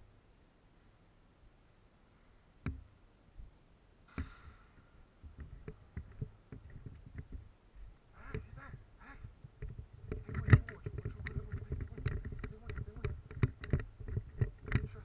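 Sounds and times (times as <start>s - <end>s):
sharp knocks: 4.1s - 7.5s.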